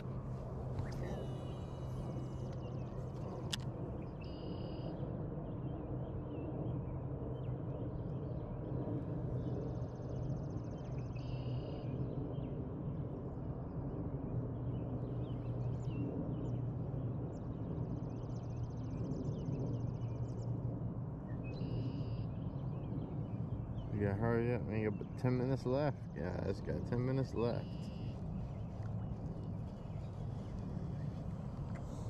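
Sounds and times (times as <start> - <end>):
songbirds singing buzzy trills: 0.0 - 12.7, 21.2 - 32.0
steady low hum: 0.0 - 32.0.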